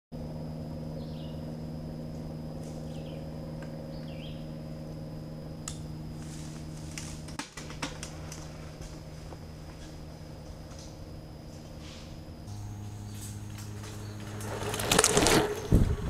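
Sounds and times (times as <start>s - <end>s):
steady low hum: 0.1s - 16.0s
bird chirps: 1.0s - 1.4s, 2.8s - 3.3s, 3.9s - 4.6s
bike clicks and knocks: 5.7s - 10.0s, 12.8s - 16.0s.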